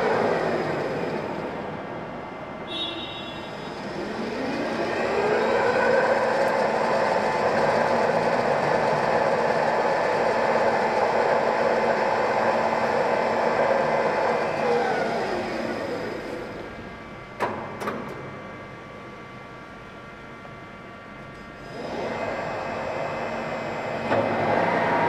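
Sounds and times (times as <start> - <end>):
lathe running: 0.0 - 1.8, 3.6 - 16.8.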